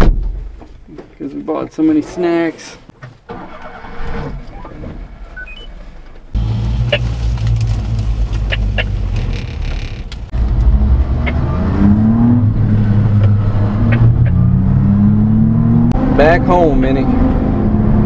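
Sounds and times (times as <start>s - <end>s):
truck engine humming: 5.2s - 16.0s.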